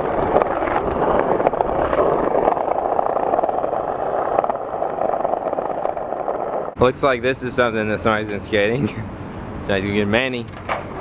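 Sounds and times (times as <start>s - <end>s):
skateboard wheels rolling on bricks: 0.0s - 6.8s, 10.5s - 11.0s.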